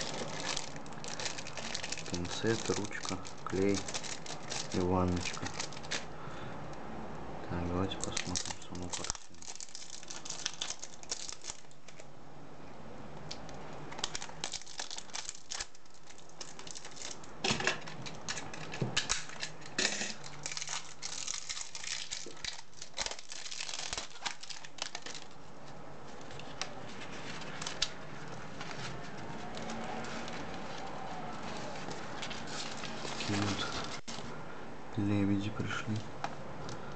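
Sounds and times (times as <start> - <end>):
paper rustling: 0.0 - 6.1, 20.3 - 34.3
plastic wrapping crinkling and tearing: 0.0 - 6.1, 7.9 - 12.1, 13.9 - 34.3.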